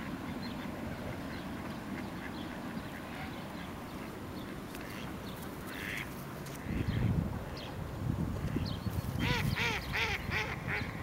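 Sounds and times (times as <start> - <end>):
ducks quacking: 0.0 - 7.1.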